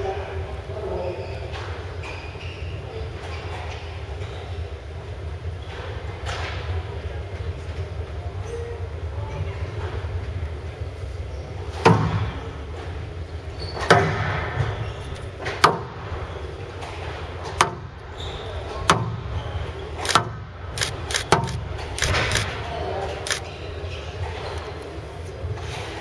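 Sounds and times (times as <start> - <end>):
steady low hum: 14.2 - 26.0.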